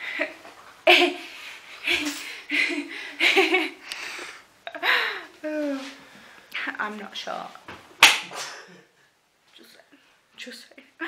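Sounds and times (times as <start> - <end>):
woman laughing: 0.0 - 3.8.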